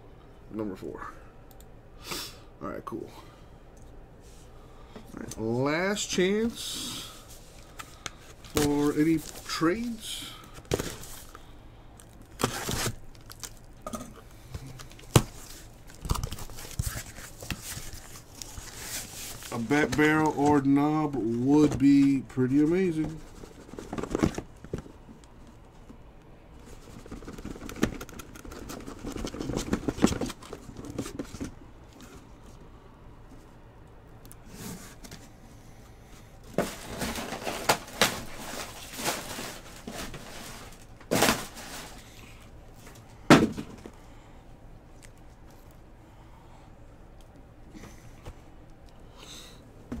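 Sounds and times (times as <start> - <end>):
cardboard scraping and rustling: 22.8 - 24.9, 36.5 - 42.0
knocks on cardboard boxes: 43.3 - 43.9.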